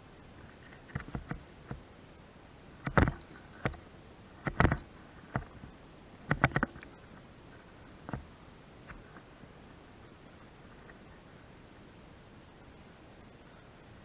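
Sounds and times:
irregular knocks and clicks: 0.9s - 1.8s, 2.8s - 3.8s, 4.4s - 5.6s, 6.3s - 6.9s, 8.0s - 8.3s.

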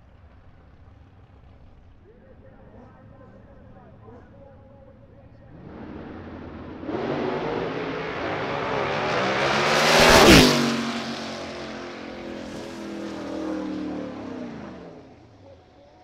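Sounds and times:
race cars accelerating at full throttle: 5.3s - 15.6s.

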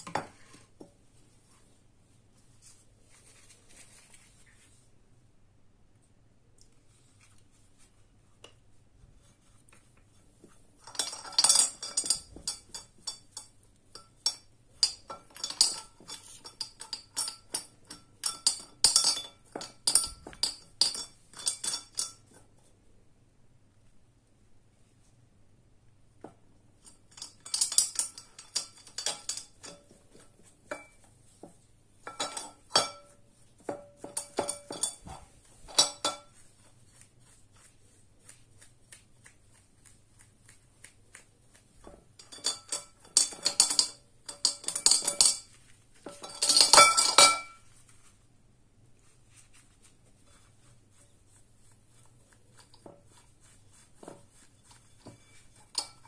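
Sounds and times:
brush scrubbing: 6.8s - 14.1s, 26.8s - 46.8s, 48.9s - 56.0s
metal parts clinking against glass: 10.8s - 22.3s, 26.8s - 29.9s, 32.0s - 33.1s, 34.0s - 36.3s, 42.2s - 45.5s, 46.1s - 47.6s.

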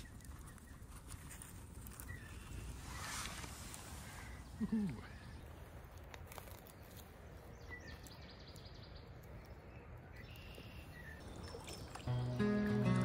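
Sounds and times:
faint bird chirps: 7.5s - 12.3s.

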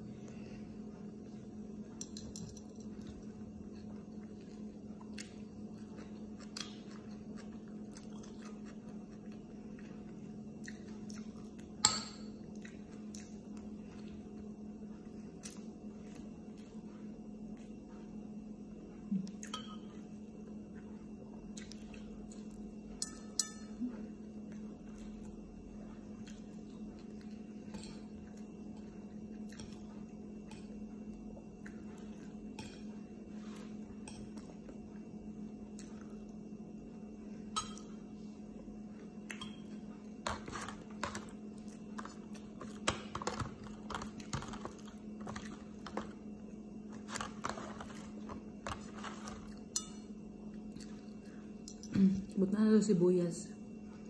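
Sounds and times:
steady low hum: 0.0s - 54.0s
spoon clinking on ceramic bowl: 23.0s - 23.8s.

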